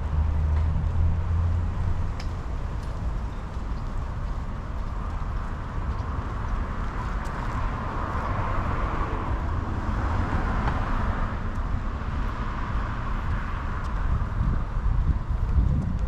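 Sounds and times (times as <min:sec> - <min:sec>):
low traffic rumble: 0:00.0 - 0:16.0
car passing: 0:04.8 - 0:15.4.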